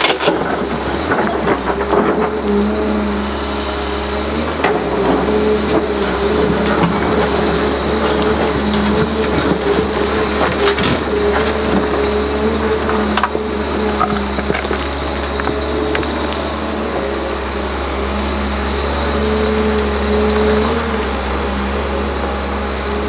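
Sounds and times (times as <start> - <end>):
stones clunking against bucket: 0.0 - 2.4, 4.6 - 16.2
excavator engine and hydraulics: 0.0 - 23.0.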